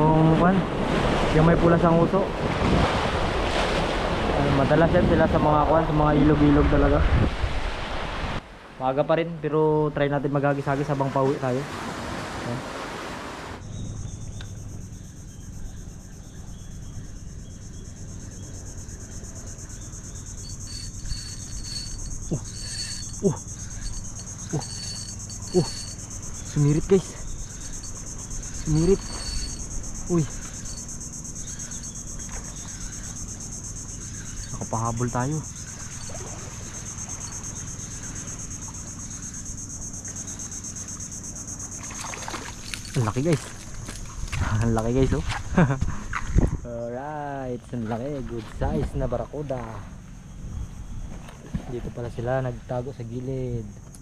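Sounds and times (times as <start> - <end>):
high-pitched insect chorus: 4.0 - 7.0, 13.0 - 54.0
low steady rumble: 13.6 - 41.8.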